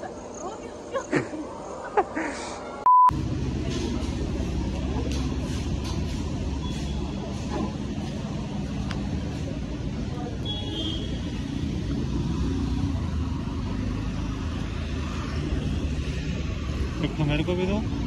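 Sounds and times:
rumble of passing vehicles: 3.1s - 18.0s.

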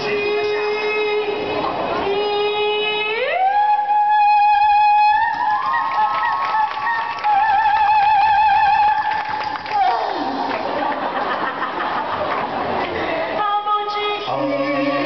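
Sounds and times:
vocal group singing: 0.0s - 3.8s, 12.9s - 15.0s.

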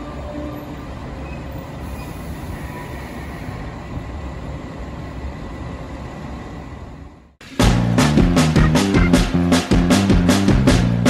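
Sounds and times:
train rumbling slowly: 0.0s - 11.0s.

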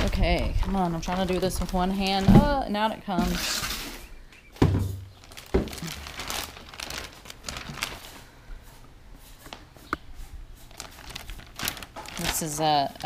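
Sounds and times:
plastic bag crinkling: 0.0s - 2.6s, 5.1s - 8.3s, 10.6s - 13.0s
thumps: 4.6s - 6.0s.

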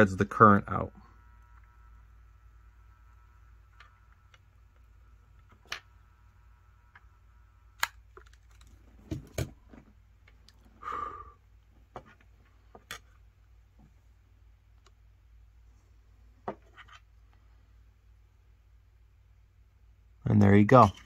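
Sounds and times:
clicks and knocks of handling: 7.8s - 10.6s.

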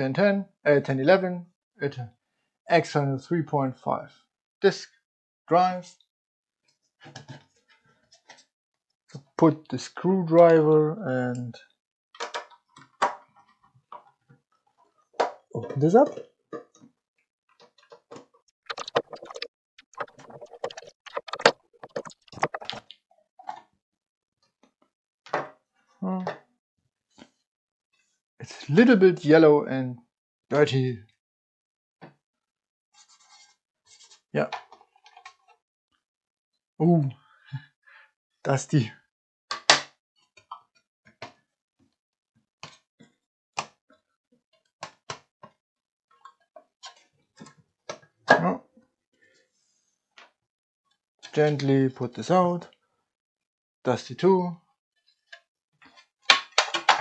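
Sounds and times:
plastic case clicking and knocking: 20.0s - 22.8s, 56.3s - 57.0s.

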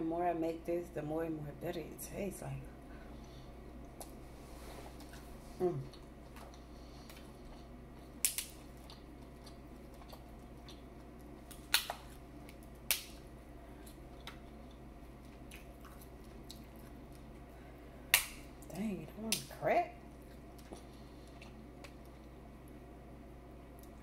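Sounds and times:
chewing: 4.9s - 12.7s, 13.8s - 17.5s, 20.1s - 22.4s.

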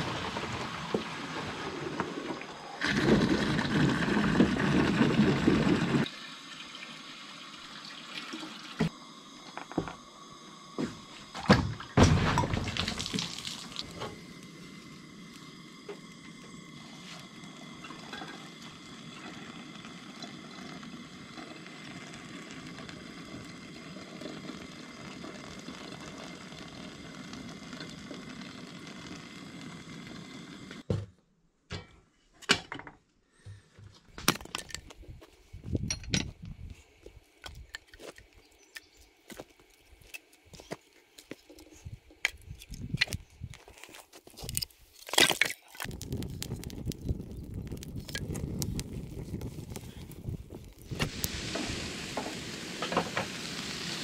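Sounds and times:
hot water pouring into coffee filter: 0.0s - 9.2s, 12.6s - 30.8s, 45.8s - 54.0s.

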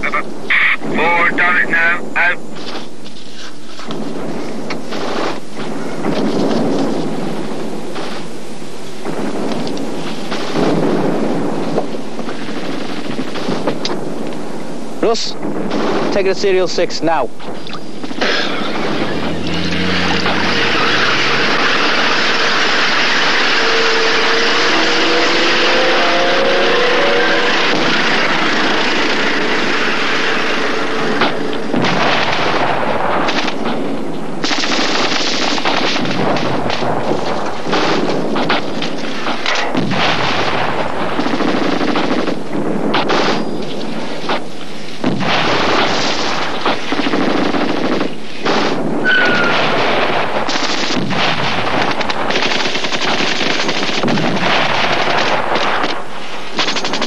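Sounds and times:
machine-gun fire: 4.0s - 5.4s, 9.0s - 14.2s, 15.4s - 16.6s, 18.0s - 25.8s, 27.0s - 43.5s, 45.0s - 57.0s.

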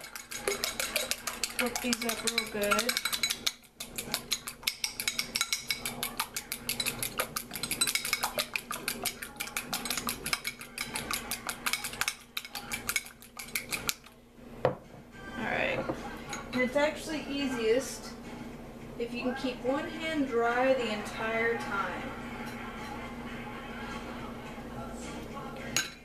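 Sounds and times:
fork clinking against ceramic bowl: 0.0s - 14.1s.

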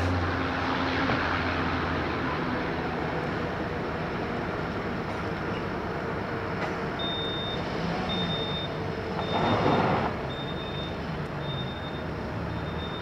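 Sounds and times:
high beeps: 7.0s - 9.5s.

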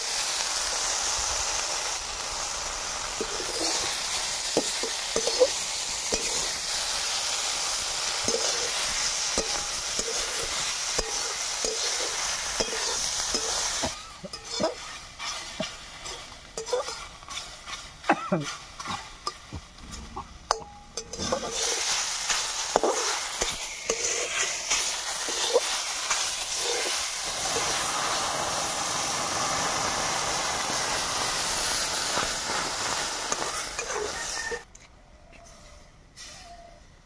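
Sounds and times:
fish sizzling in hot oil: 0.0s - 19.8s, 20.4s - 34.6s
spatula knocking and scraping pan: 9.3s - 17.8s.

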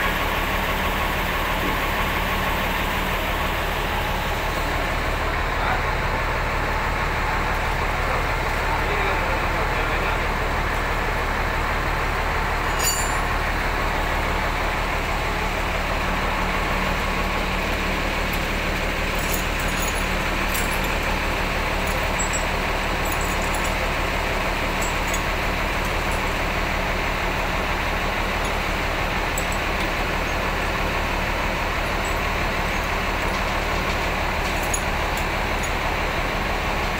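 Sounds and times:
diesel bus engine idling: 0.0s - 36.9s.

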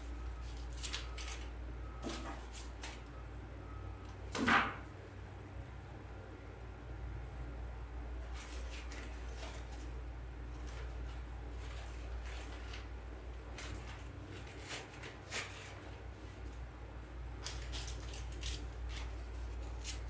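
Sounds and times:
artificial flowers rustling: 8.2s - 16.6s.

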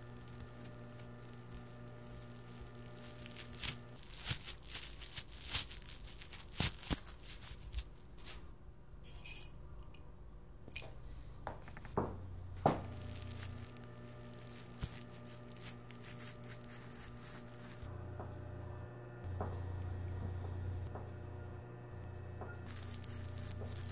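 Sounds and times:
low machine hum: 0.0s - 23.9s
metallic clink: 9.0s - 10.0s, 10.7s - 11.0s.

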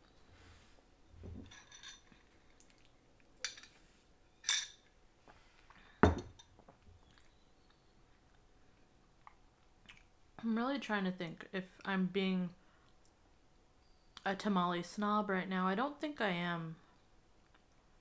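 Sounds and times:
glass clinking and knocking on table: 6.0s - 6.6s.

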